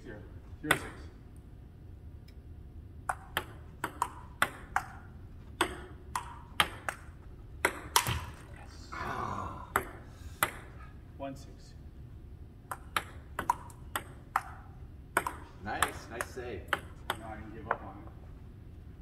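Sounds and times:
table tennis ball hits: 0.7 - 1.1, 3.0 - 8.4, 9.7 - 10.9, 12.7 - 17.9.

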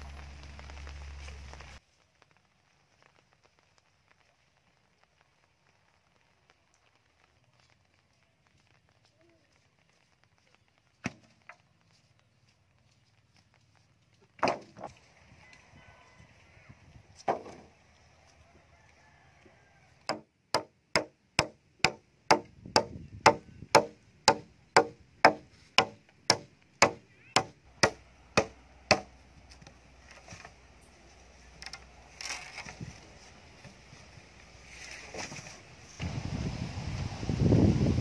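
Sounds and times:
small axe chopping wooden pole: 20.1 - 29.1.

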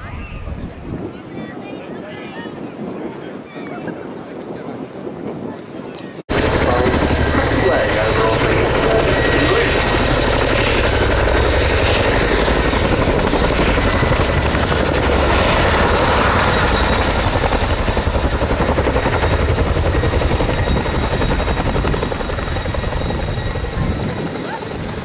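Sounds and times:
helicopter engine whine: 6.3 - 25.0.

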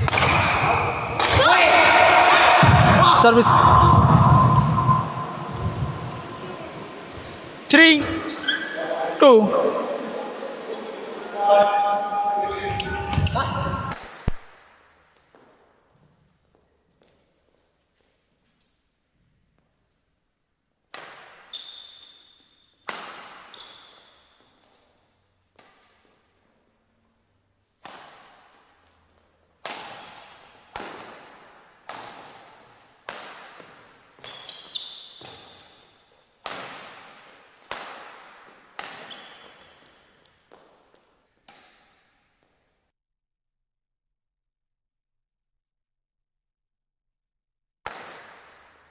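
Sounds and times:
rackets hitting shuttlecock: 0.0 - 1.5, 13.9 - 15.5, 20.9 - 22.2, 22.8 - 24.1, 27.8 - 28.7, 29.6 - 32.4, 33.0 - 35.6, 36.4 - 39.6, 47.8 - 48.8
shoes squeaking on court floor: 8.0 - 8.9, 12.8 - 18.7, 21.2 - 26.4, 28.1 - 42.6, 47.9 - 48.8.

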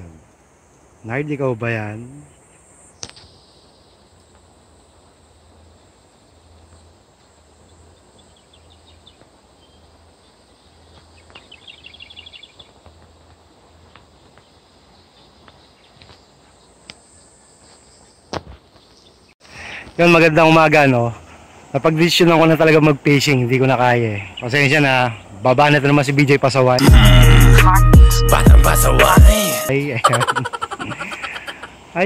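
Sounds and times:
high chirping trill: 26.8 - 31.7.

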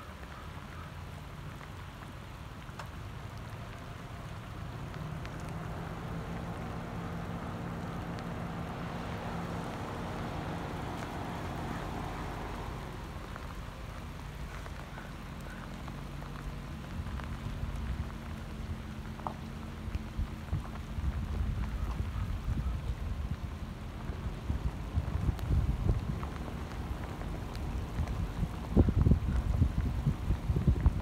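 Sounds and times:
wind buffeting microphone: 19.8 - 31.0.

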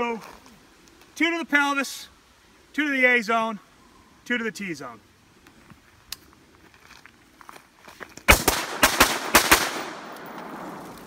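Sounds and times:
rifle shots echoing: 8.3 - 11.0.

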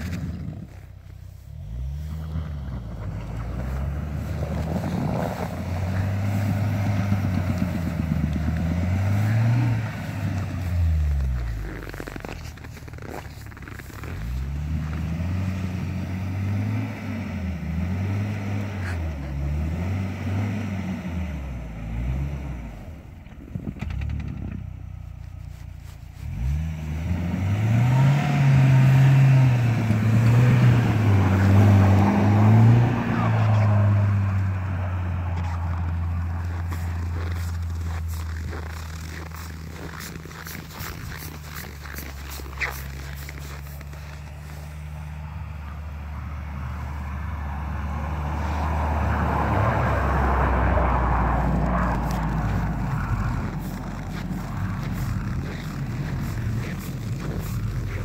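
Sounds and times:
suv engine revving: 0.0 - 58.0.

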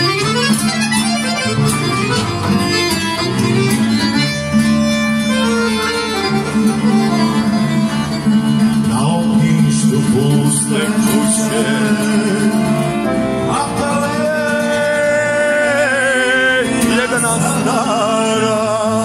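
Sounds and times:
accordion folk music: 0.0 - 19.0
man singing into microphone: 8.8 - 19.0.

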